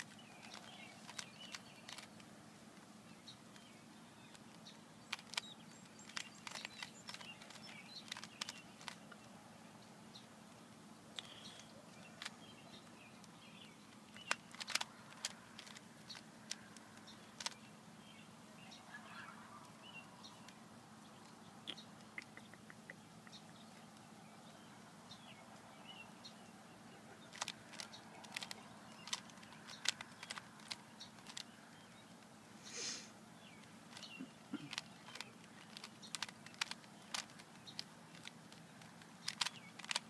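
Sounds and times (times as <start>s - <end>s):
puzzle cube clicking: 0.0s - 2.3s, 4.3s - 9.2s, 14.0s - 17.6s, 27.3s - 31.6s, 33.6s - 40.0s.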